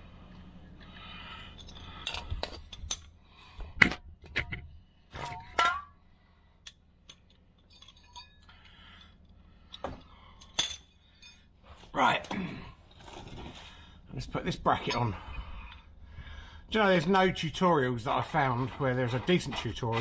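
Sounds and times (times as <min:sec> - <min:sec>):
metal tools clinking on steel: 0:06.7 - 0:11.5, 0:14.7 - 0:15.8.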